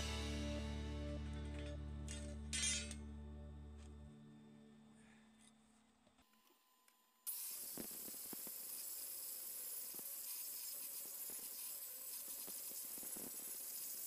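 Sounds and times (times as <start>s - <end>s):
grinder disc hissing on metal: 7.3s - 14.0s
grinder motor whine: 7.3s - 14.0s.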